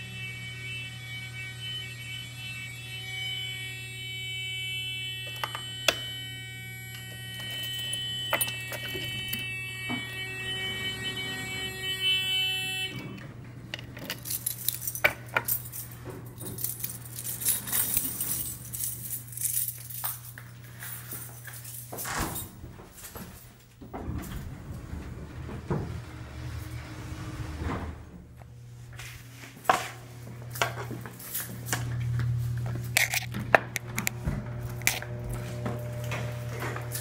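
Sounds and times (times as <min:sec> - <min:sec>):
electronic alert tone: 0:05.1 - 0:13.2
keys jangling: 0:07.4 - 0:09.4, 0:13.7 - 0:23.4.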